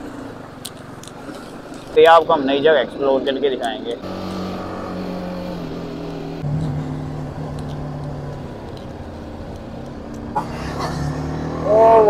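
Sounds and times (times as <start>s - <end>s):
road and wind noise: 0.0s - 12.0s
motorcycle engine running: 3.9s - 12.0s.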